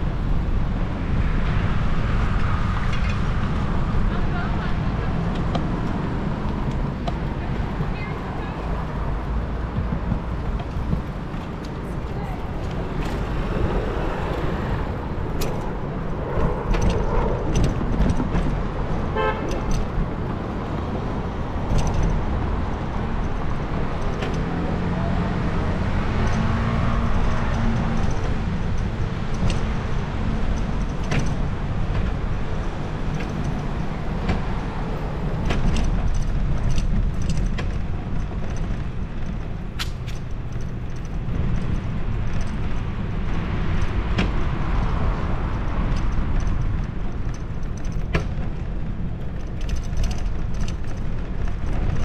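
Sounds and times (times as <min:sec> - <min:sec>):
road noise: 0:00.0 - 0:52.0
wind rumble on microphone: 0:00.0 - 0:52.0
held horn-like tone: 0:19.1 - 0:19.6
rattling clicks: 0:21.6 - 0:24.6, 0:26.2 - 0:52.0.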